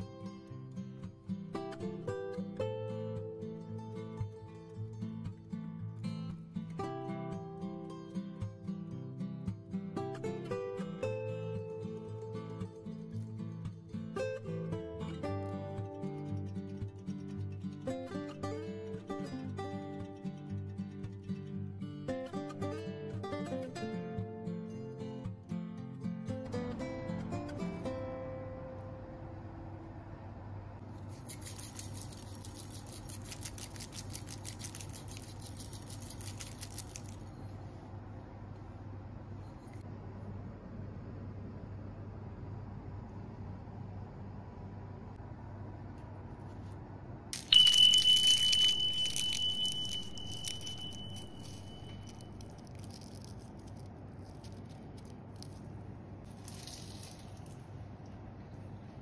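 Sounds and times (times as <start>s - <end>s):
steady low hum: 27.1s - 59.0s
seeds pattering onto pastry: 30.9s - 37.6s, 47.4s - 57.8s
bell-like chime: 47.4s - 52.4s.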